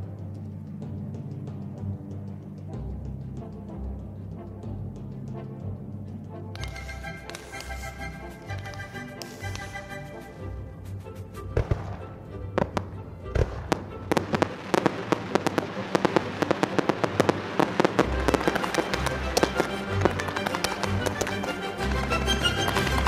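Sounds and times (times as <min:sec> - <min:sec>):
background music: 0:00.0 - 0:23.0
fireworks bangs and crackles: 0:11.6 - 0:12.0, 0:12.6 - 0:23.0.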